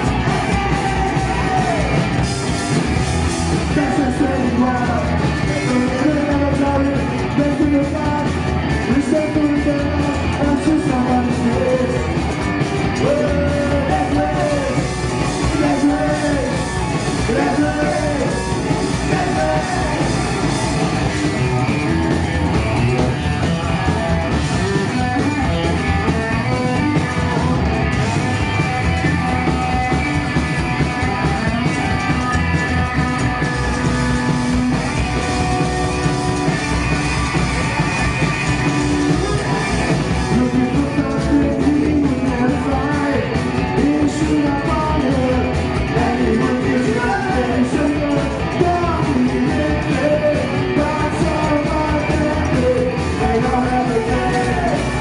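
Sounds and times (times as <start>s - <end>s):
person singing lead vocal: 0.0s - 2.1s, 3.6s - 12.2s, 12.8s - 22.0s, 38.8s - 55.0s
live rock band playing: 0.0s - 55.0s.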